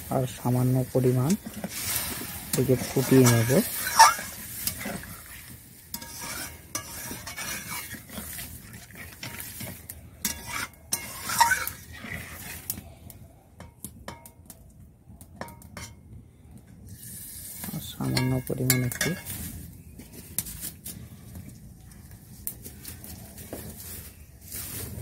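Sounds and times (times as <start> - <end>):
gravy sizzling: 0.0 - 12.8, 16.9 - 20.8
metal spatula scraping a pan: 0.2 - 12.8, 17.1 - 19.7.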